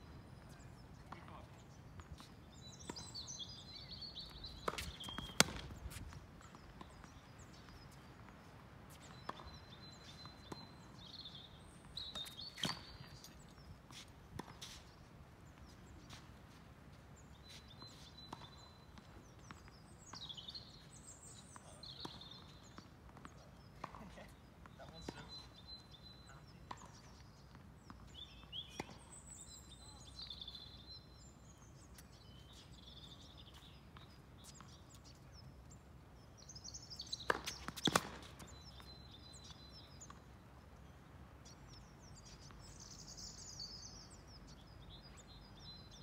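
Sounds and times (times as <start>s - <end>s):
birds chirping: 0.1s - 46.0s
ball bounces: 4.6s - 5.8s, 37.3s - 38.8s
tennis racket hits: 4.7s - 5.7s.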